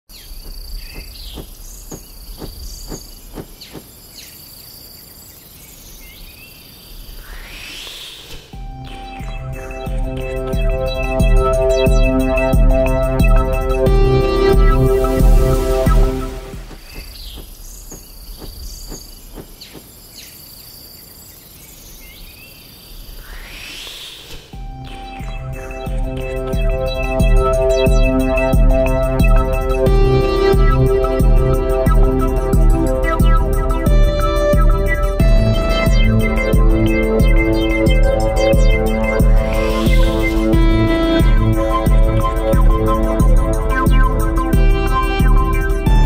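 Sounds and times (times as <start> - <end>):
insects hissing: 0.1 - 8.7, 15.0 - 24.7
bird chirps: 0.1 - 13.4, 15.9 - 29.4, 34.5 - 40.6.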